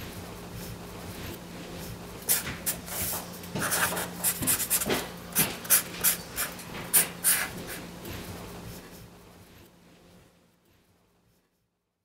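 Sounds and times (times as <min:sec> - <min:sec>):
marker scratching on paper: 0:02.3 - 0:07.8.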